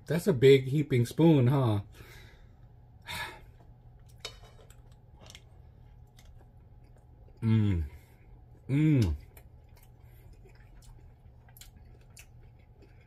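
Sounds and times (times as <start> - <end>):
person humming briefly: 7.4 - 8.0, 8.7 - 9.2.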